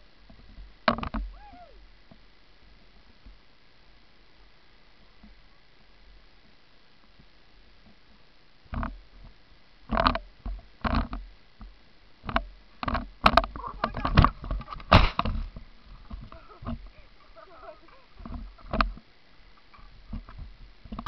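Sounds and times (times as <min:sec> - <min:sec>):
skis and poles knocking and scraping: 0:09.9 - 0:21.0.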